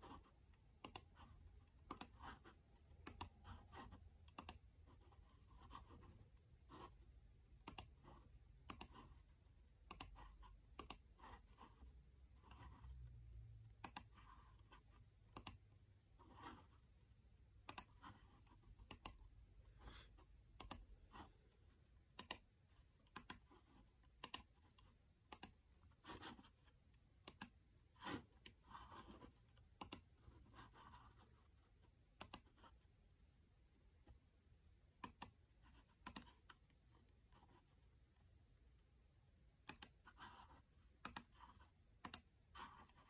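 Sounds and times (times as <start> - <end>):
computer mouse clicking: 0.0 - 4.7, 7.6 - 9.2, 9.8 - 11.7, 13.8 - 15.7, 17.6 - 19.4, 20.5 - 21.3, 22.1 - 31.2, 32.1 - 32.8, 35.0 - 36.8, 39.6 - 43.0.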